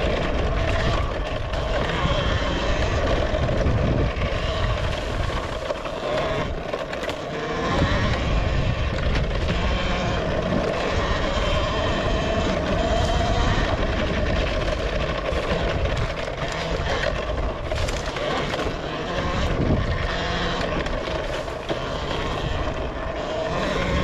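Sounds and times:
electric motor whine: 0.0 - 24.0
wind buffeting: 0.0 - 24.0.

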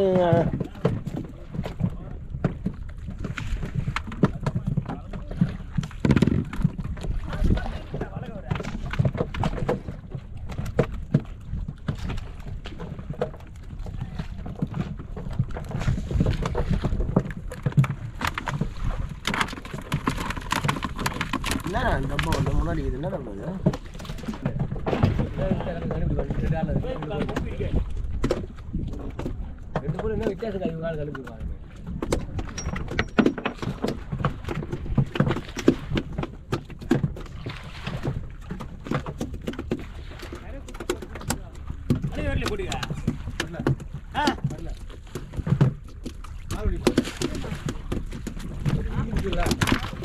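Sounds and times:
knocks and slaps around wooden boat: 0.0 - 50.0
low rumble of water and wind: 0.0 - 50.0.

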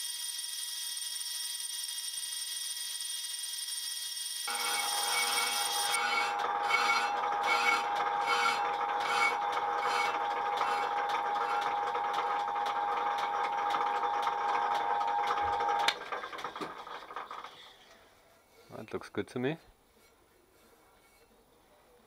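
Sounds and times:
lathe tool scraping metal disc: 0.0 - 16.0.

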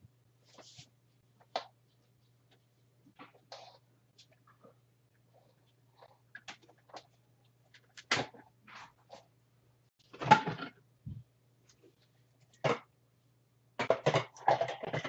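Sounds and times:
plastic parts clattering: 13.8 - 15.0.

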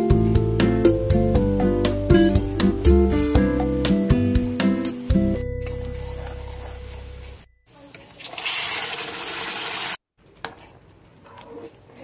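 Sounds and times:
guitar music: 0.0 - 7.4
food sizzling in hot oil: 8.3 - 10.0.

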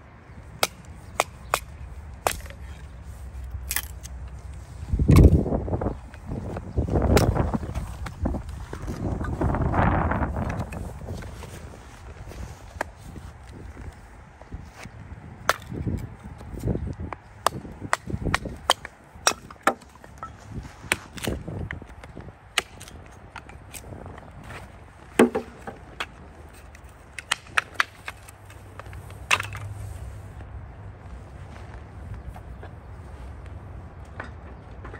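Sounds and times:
hatchet chopping kindling: 0.5 - 2.7, 3.5 - 4.1, 6.4 - 11.2, 15.4 - 29.7.

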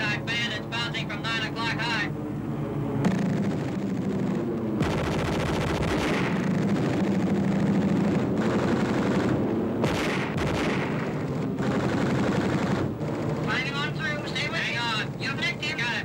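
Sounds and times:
steady low hum: 0.0 - 16.0
machine-gun fire: 3.1 - 14.0.

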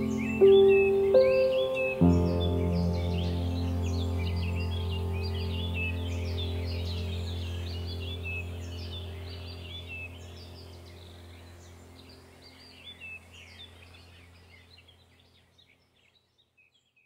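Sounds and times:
bird chirps: 0.0 - 17.0
steady low hum: 2.0 - 15.1.

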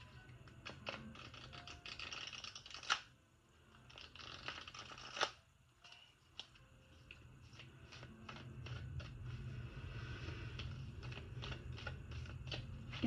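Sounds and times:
cards riffle-shuffled: 0.6 - 3.0, 3.9 - 5.4, 6.3 - 9.3, 10.5 - 13.0.

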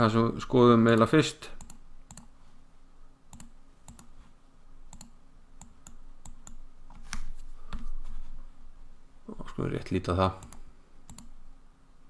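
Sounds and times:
computer mouse clicking: 0.9 - 2.3, 3.3 - 4.2, 4.9 - 7.8, 10.4 - 11.4.

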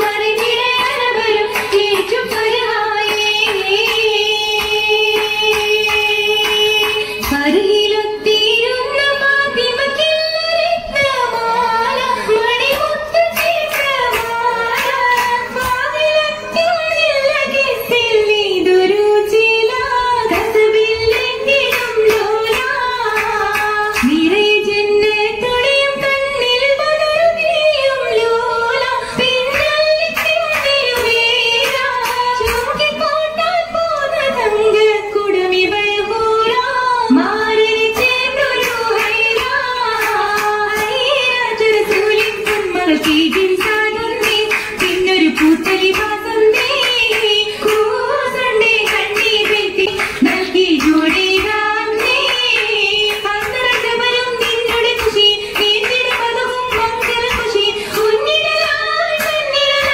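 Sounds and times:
hand claps: 0.0 - 7.6, 11.9 - 18.0, 19.2 - 24.8, 28.7 - 33.1, 37.8 - 59.9
girls singing in a group: 0.0 - 59.9.

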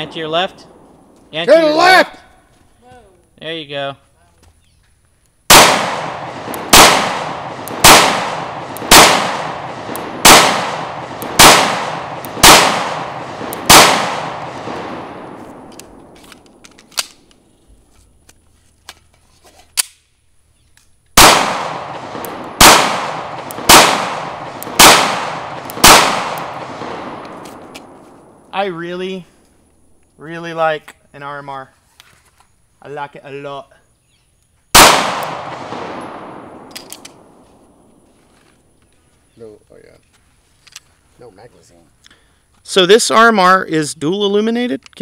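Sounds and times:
pistol shots with echo: 5.5 - 16.2, 21.2 - 28.0, 34.7 - 37.8.

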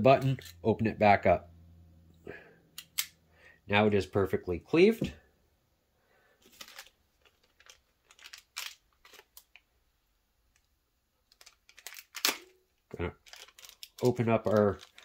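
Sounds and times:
plastic bag crinkling: 6.4 - 9.6, 11.2 - 12.5, 13.1 - 15.0.

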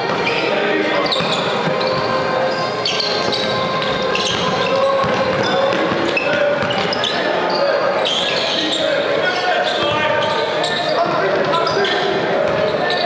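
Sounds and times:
sneakers squeaking: 0.0 - 13.0
steady indoor din: 0.0 - 13.0
basketball dribbling: 3.1 - 7.0.

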